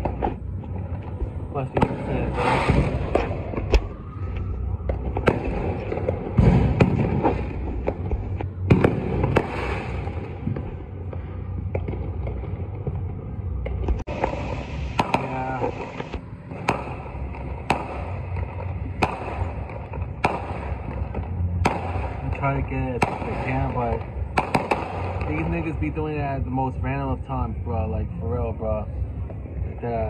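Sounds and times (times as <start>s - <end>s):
distant fireworks rumble and crackle: 0.0s - 30.0s
loud firework bangs: 1.6s - 3.9s, 4.9s - 13.2s, 13.9s - 26.4s.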